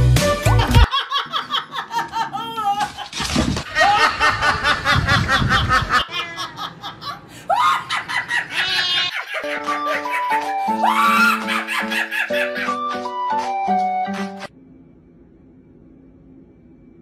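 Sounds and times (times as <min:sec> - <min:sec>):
woman laughing hard: 0:00.6 - 0:13.1.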